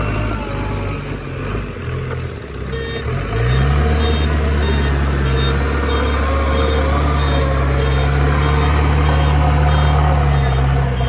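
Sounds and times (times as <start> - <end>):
diesel engine revving: 0.0 - 11.0
high beeps: 4.0 - 11.0.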